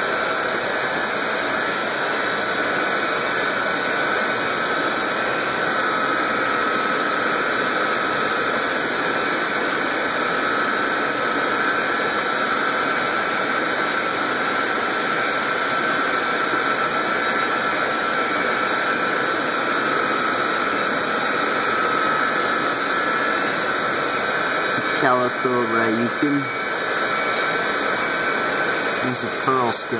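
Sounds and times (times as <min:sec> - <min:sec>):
faint whine: 0:22.3 - 0:29.9.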